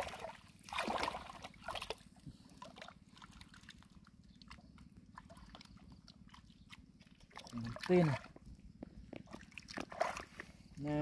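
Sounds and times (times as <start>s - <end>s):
wet clicks and squelches in mud: 2.7s - 10.5s.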